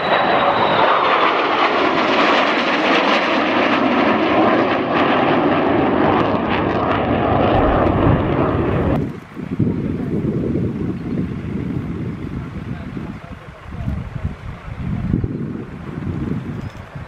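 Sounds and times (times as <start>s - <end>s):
high jet whine: 0.0s - 13.6s
jet roar: 0.0s - 17.0s.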